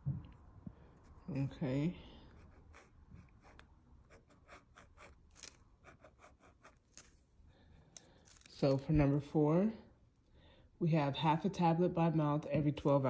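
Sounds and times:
faint scratching on paper: 0.9 - 7.2.

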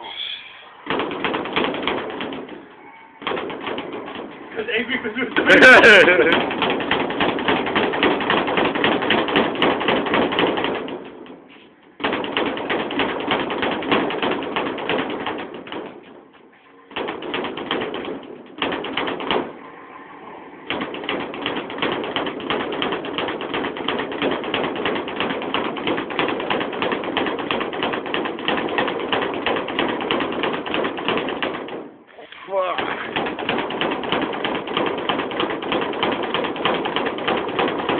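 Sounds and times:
speed bag rattling: 0.9 - 19.6, 20.7 - 32.0, 32.6 - 37.9.

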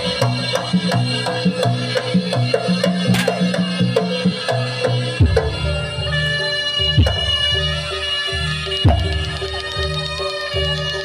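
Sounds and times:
kendang drum: 0.0 - 7.8.

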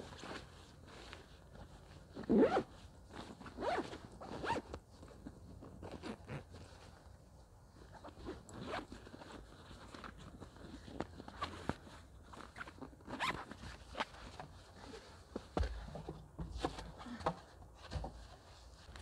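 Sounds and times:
fabric rustling: 0.0 - 15.6
backpack zip pulled: 2.3 - 2.6, 3.6 - 4.7.

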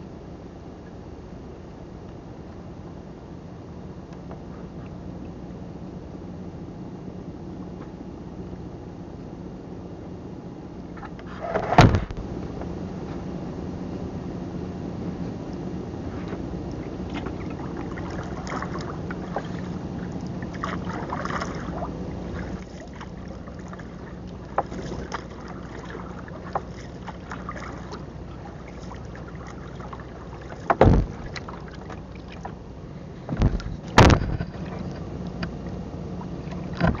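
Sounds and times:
small boat engine running: 0.0 - 37.0
knocks on wooden hull: 30.6 - 31.5, 33.3 - 34.6.

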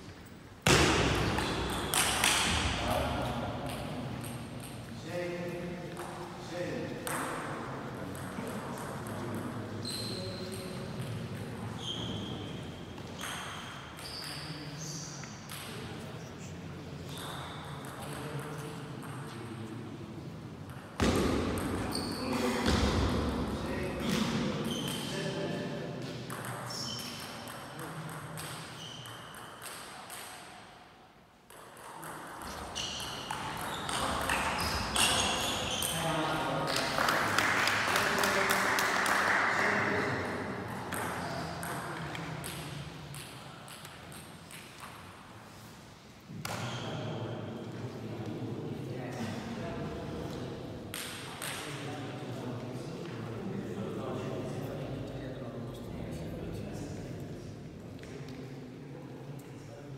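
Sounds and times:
low murmur of sports hall: 0.0 - 59.9.

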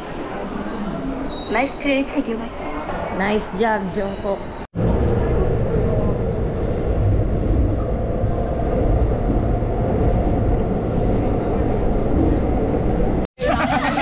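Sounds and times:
subway train rumble: 4.3 - 13.3.

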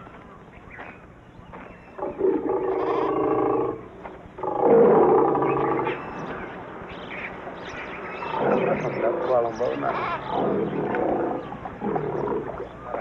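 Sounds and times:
lion growling: 2.0 - 6.0, 8.2 - 13.0.

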